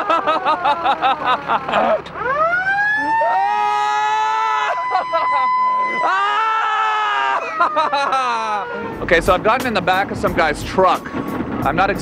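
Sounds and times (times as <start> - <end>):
fire truck siren: 0.0 - 9.6.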